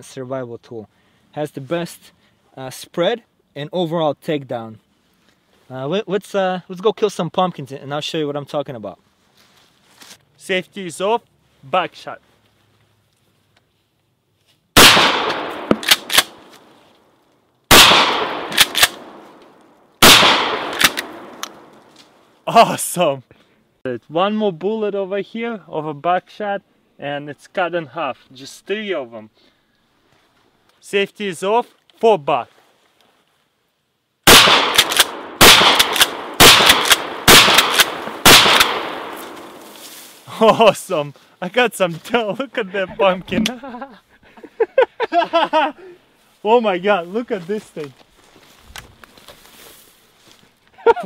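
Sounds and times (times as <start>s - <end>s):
shotgun blasts: 14.8s - 16.4s, 17.7s - 19.4s, 20.0s - 21.8s, 34.3s - 39.8s.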